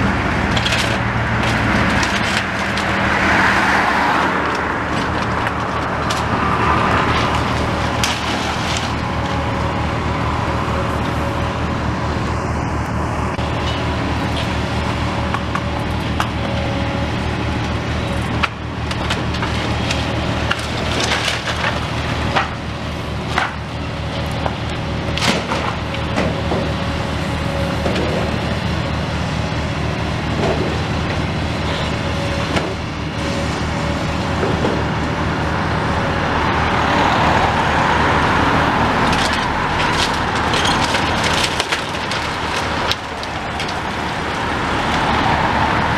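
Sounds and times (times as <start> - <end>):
excavator diesel engine running: 0.0 - 45.9
wood splintering and masonry falling: 0.4 - 9.2, 18.3 - 22.6, 25.1 - 26.7, 39.0 - 45.1
car passing: 2.6 - 7.9.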